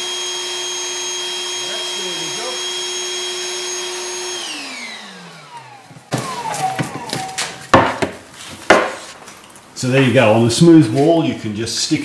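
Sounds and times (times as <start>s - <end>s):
vacuum cleaner whining: 0.0s - 8.6s
plastic knocks and clatter: 5.9s - 9.0s.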